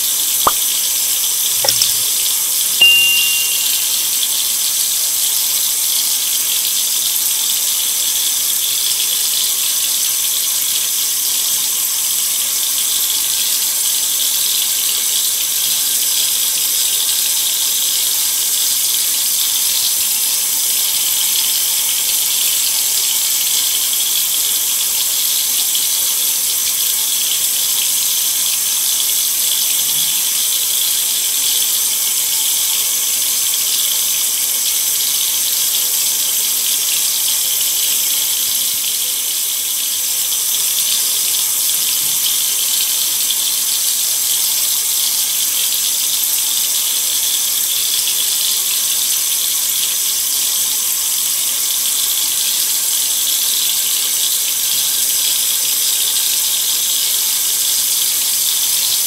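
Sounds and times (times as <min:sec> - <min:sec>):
faucet water splashing: 0:01.6 - 0:02.0.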